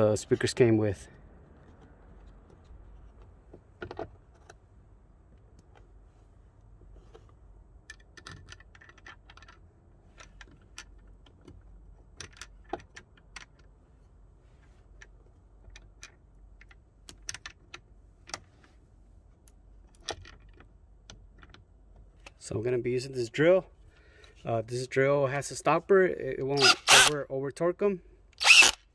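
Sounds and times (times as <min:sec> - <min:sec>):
small screws clinking: 0:28.4 - 0:28.8.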